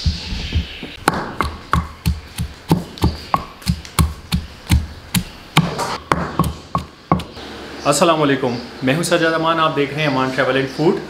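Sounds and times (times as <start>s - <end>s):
pestle pounding in mortar: 0.5s - 7.4s.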